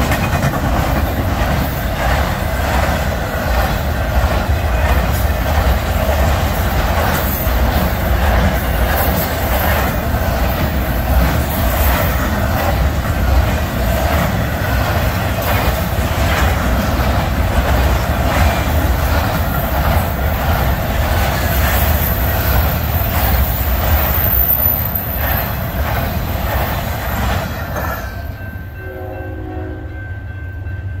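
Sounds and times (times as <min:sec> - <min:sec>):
wheels clicking over rail joints: 0:00.0 - 0:28.2
freight train rumbling by: 0:00.0 - 0:31.0.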